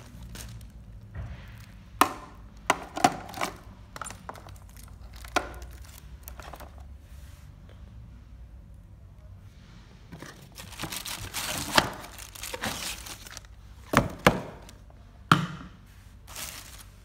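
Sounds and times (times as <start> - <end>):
plastic bag crinkling: 0.0 - 1.8, 3.1 - 6.9, 10.2 - 14.0, 16.2 - 17.0.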